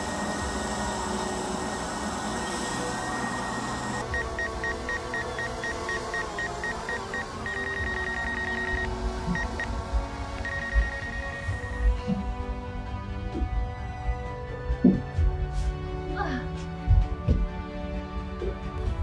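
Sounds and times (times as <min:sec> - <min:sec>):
sustained musical tones: 0:00.0 - 0:15.4
high electronic beeping: 0:01.6 - 0:09.8, 0:10.4 - 0:11.9.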